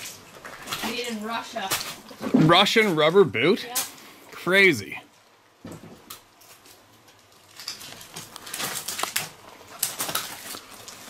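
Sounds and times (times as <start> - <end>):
driftwood and debris clattering: 5.7 - 11.0.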